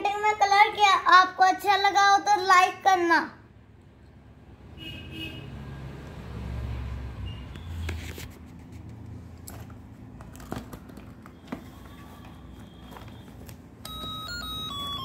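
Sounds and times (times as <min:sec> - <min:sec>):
paper pages rustling: 0:07.8 - 0:15.0
electronic beeping melody: 0:13.8 - 0:15.0.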